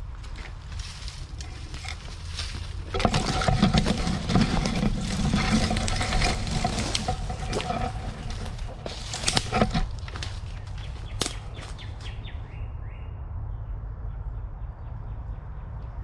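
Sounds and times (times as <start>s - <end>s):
bamboo stalks rustling: 0.0s - 12.2s
footsteps crunching on dry leaves: 0.0s - 12.3s.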